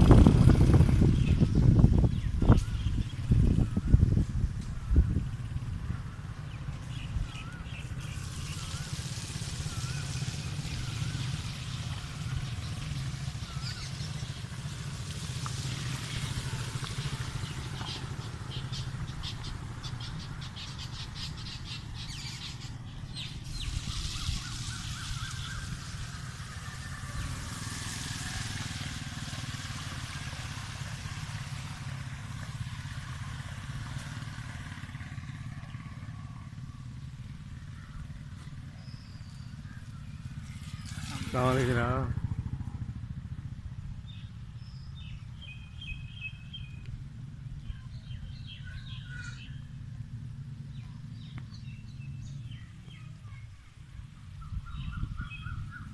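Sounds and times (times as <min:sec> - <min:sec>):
birds chirping: 0:00.0 - 0:55.9
motorcycles riding through water: 0:00.0 - 0:55.9
bird wavering call: 0:06.0 - 0:14.4, 0:17.0 - 0:27.4, 0:47.7 - 0:49.8, 0:54.3 - 0:55.9.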